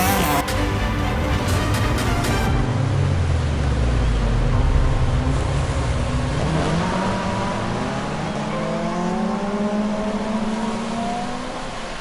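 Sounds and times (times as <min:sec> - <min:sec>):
engine accelerating: 0:00.0 - 0:11.8.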